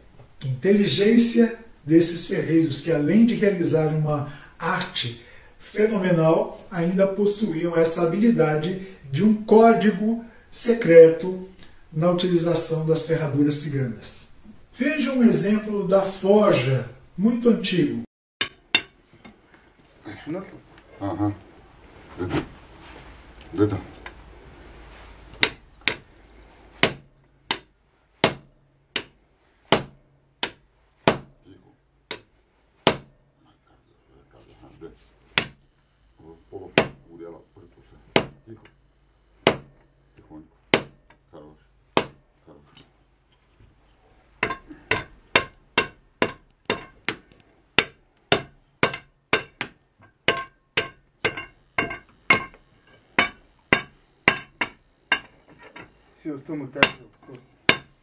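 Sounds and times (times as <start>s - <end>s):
hammer striking iron on anvil: 18.4s - 19.4s, 25.4s - 26.1s, 26.8s - 31.4s, 32.1s - 33.3s, 35.4s - 35.6s, 36.8s - 37.2s, 38.1s - 38.8s, 39.4s - 40.0s, 40.7s - 41.2s, 42.0s - 42.4s, 44.4s - 55.9s, 56.7s - 58.0s.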